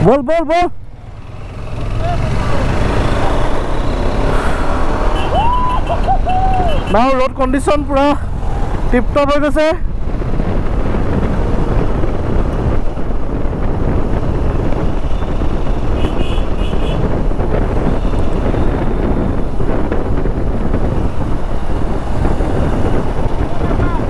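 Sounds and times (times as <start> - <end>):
motorcycle engine running: 0.9 - 6.9
wind buffeting microphone: 0.9 - 24.0.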